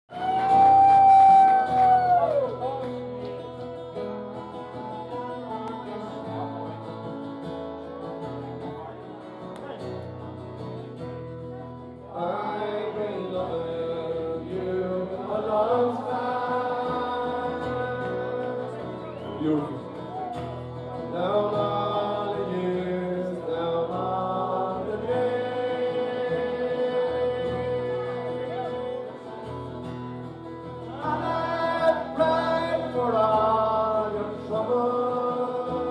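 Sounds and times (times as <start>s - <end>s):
acoustic guitar picking: 0.4s - 35.9s
man singing into a microphone: 12.0s - 19.9s, 21.0s - 29.6s, 30.8s - 35.9s.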